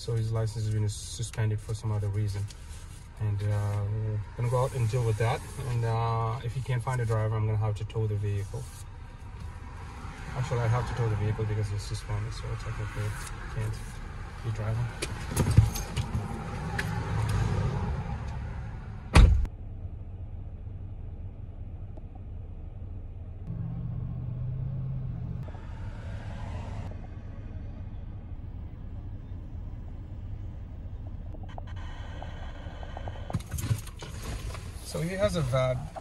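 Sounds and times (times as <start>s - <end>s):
car engine low rumble: 0.0s - 36.0s
car door opening: 19.1s - 19.5s
car door slamming: 19.1s - 19.5s.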